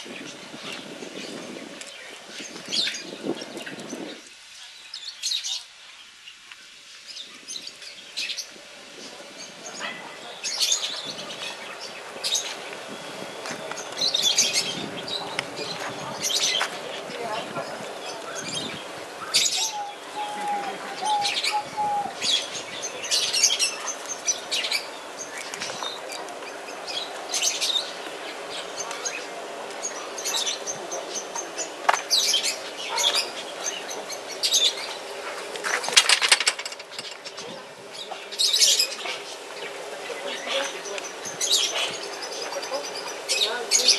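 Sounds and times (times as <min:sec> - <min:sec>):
small birds chirping: 0:00.0 - 0:43.9.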